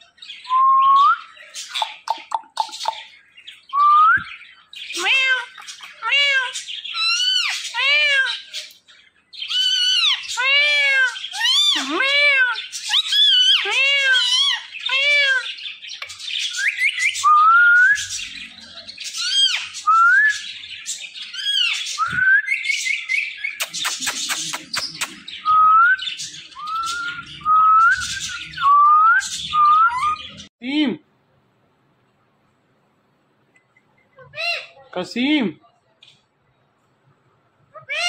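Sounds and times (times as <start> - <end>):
parakeet calling: 4.3 - 8.8, 9.4 - 22.0.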